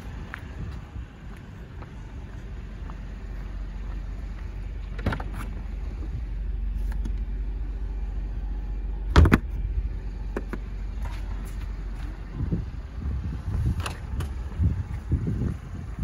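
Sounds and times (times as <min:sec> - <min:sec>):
steady low rumble: 0:00.0 - 0:16.0
loud thump: 0:09.1 - 0:09.5.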